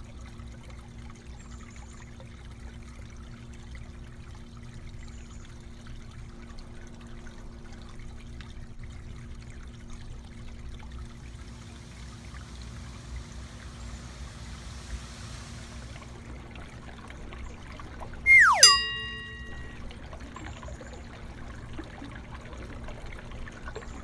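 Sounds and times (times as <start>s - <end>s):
water trickling: 0.0s - 14.6s, 15.7s - 24.0s
low hum: 18.3s - 19.8s.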